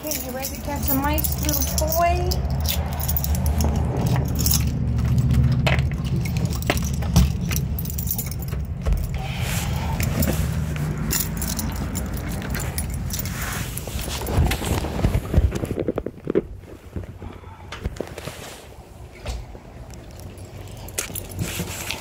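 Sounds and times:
keys jangling: 0:00.0 - 0:14.8, 0:19.9 - 0:22.0.

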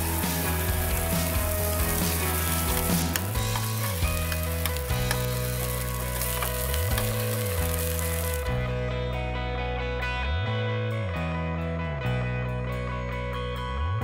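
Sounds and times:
burger patties sizzling on griddle: 0:00.0 - 0:08.5
background music with bass line: 0:00.0 - 0:14.0.

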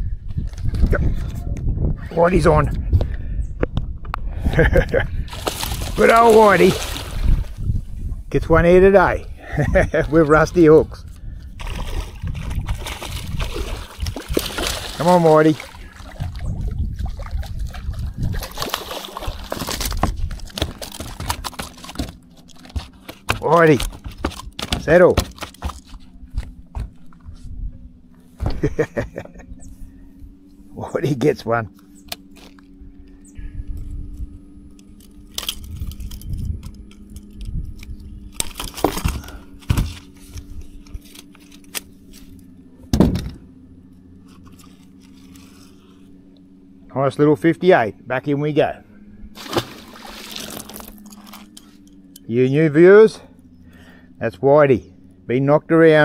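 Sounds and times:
steady low hum: 0:00.0 - 0:56.0
water splashing and sloshing: 0:05.2 - 0:08.3, 0:11.4 - 0:27.4, 0:38.2 - 0:46.9, 0:49.0 - 0:52.3
low thumps: 0:09.8 - 0:31.3.

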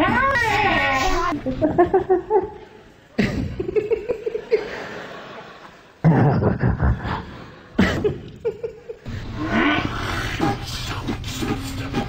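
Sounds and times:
person laughing: 0:06.0 - 0:09.1.

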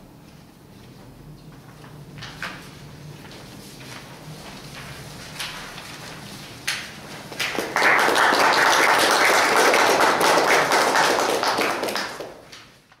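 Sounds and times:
audience applauding: 0:07.3 - 0:12.5.

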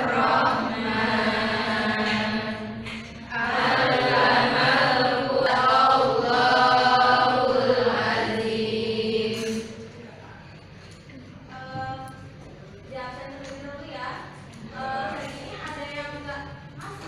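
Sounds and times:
slow chant-like singing: 0:00.0 - 0:09.8.

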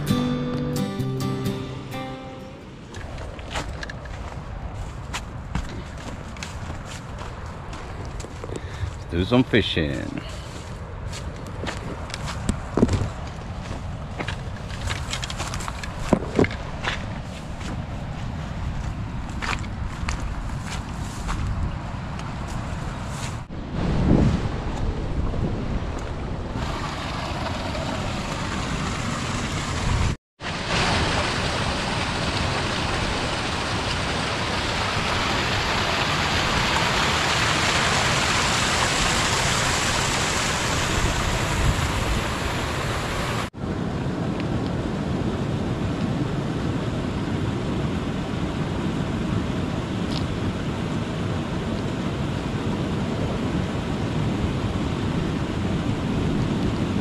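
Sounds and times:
wind on microphone: 0:10.8 - 0:27.0, 0:31.4 - 0:57.0
surf washing on beach: 0:20.6 - 0:57.0.

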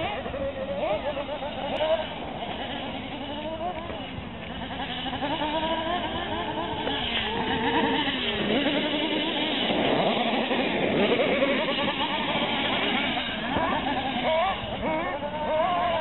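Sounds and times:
radio-controlled car motors revving: 0:00.0 - 0:16.0.

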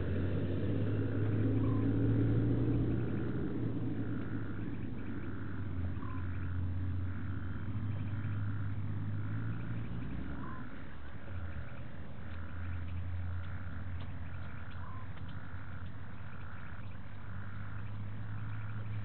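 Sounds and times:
frogs pulsing calls: 0:00.0 - 0:19.0
steady low hum: 0:00.0 - 0:19.0.

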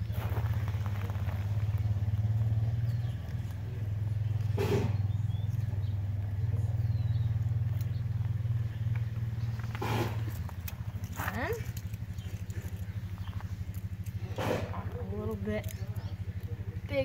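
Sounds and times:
twig kindling crackle: 0:00.0 - 0:03.7, 0:07.4 - 0:17.0
steady low rumble: 0:00.0 - 0:17.0.

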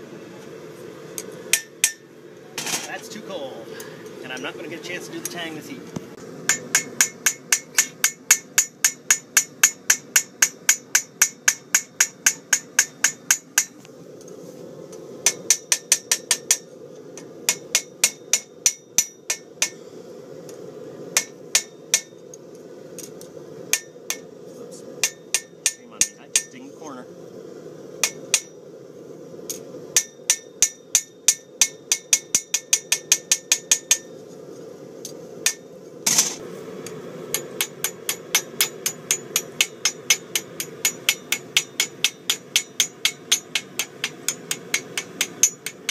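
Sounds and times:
hammer striking blade on anvil: 0:01.5 - 0:02.0, 0:06.5 - 0:13.7, 0:21.2 - 0:22.1, 0:23.7 - 0:24.2, 0:25.0 - 0:26.6, 0:28.0 - 0:28.5, 0:35.4 - 0:36.4, 0:37.3 - 0:45.9.

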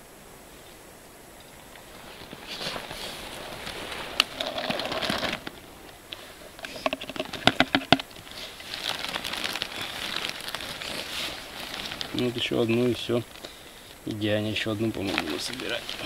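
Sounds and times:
buckets rustling and crinkling: 0:01.3 - 0:16.0
blueberries tapping into bucket: 0:06.6 - 0:08.3.

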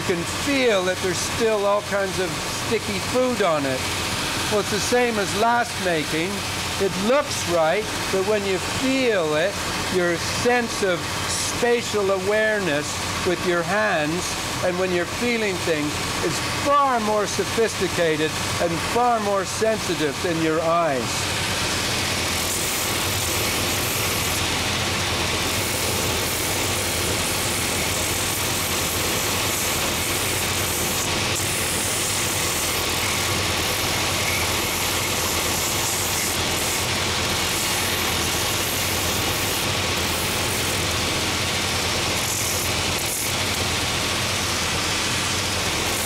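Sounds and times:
sanding machine motor whir: 0:19.9 - 0:46.0
sanding belt rasping wood: 0:22.2 - 0:24.5, 0:25.4 - 0:40.9, 0:41.9 - 0:43.4.

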